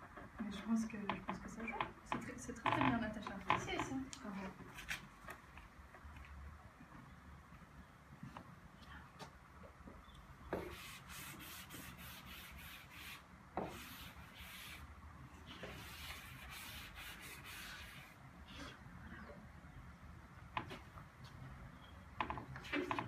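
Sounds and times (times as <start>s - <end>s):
sharp chalk taps: 9.2s - 14.7s
chalk scratching on blackboard: 10.6s - 14.9s, 15.5s - 18.2s.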